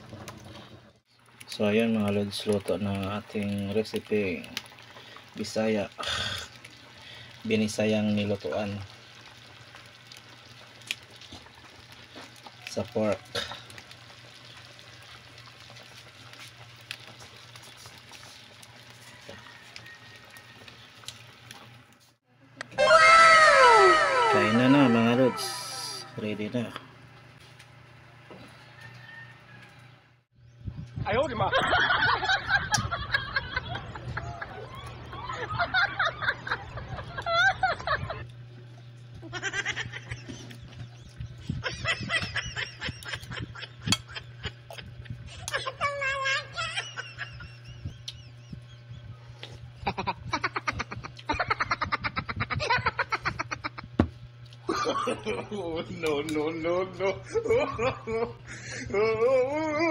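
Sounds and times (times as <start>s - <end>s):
broth boiling in a wok: 0.0s - 22.2s, 33.1s - 56.2s
wavering high-pitched call: 22.8s - 26.2s
steady low hum: 23.4s - 59.9s.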